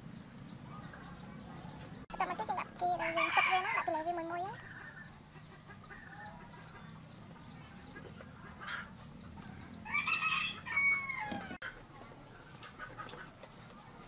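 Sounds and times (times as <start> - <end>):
rooster crowing: 9.8 - 11.6.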